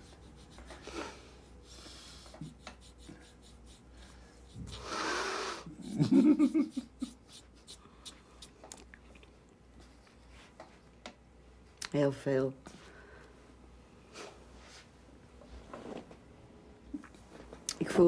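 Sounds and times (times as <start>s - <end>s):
person breathing: 0.8s - 5.8s, 12.7s - 13.4s.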